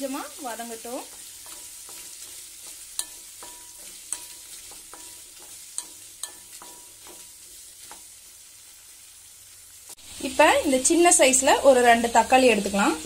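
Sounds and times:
shallots sizzling in hot oil: 0.0s - 13.0s
wooden spatula scraping metal pan: 0.6s - 8.1s.

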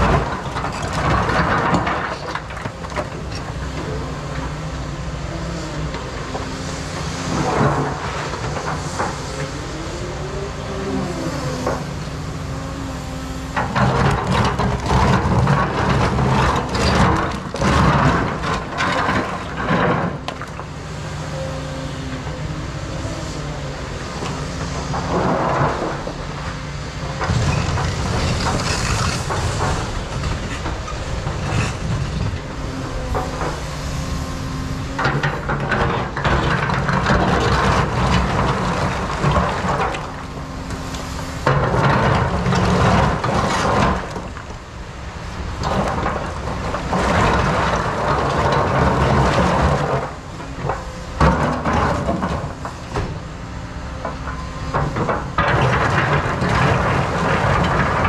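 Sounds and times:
diesel engine under load: 0.0s - 58.0s
bucket grinding on rock: 27.3s - 32.2s.

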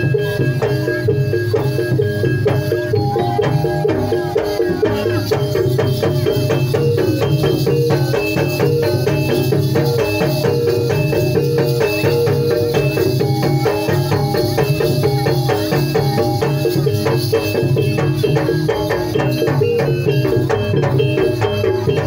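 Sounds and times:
gamelan metallic notes: 0.0s - 22.0s
steady drumming: 0.0s - 22.0s.

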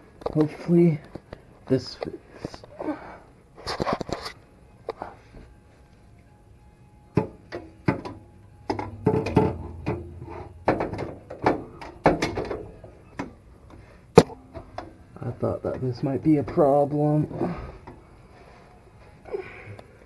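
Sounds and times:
metal clanking and knocking: 7.1s - 13.4s.

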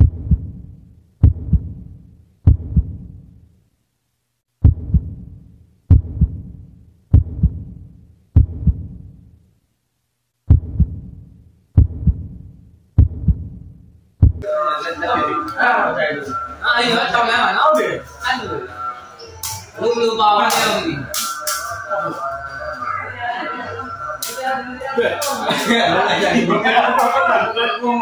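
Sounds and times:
heartbeat thumps: 0.0s - 3.3s, 4.6s - 9.2s, 10.5s - 14.4s.

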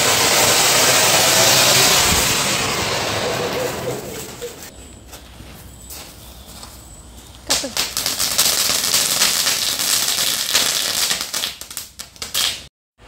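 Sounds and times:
firework fountain crackling hiss: 0.0s - 4.7s, 7.5s - 12.7s.

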